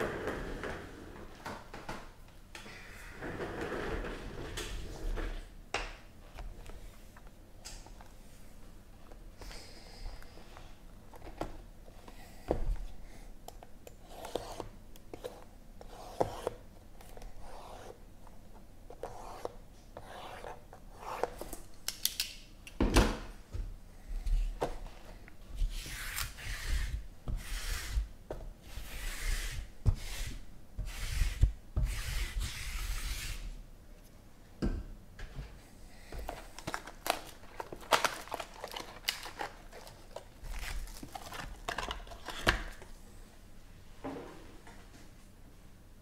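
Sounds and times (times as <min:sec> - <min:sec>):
rubbing scraping strokes: 0:25.7 - 0:33.5.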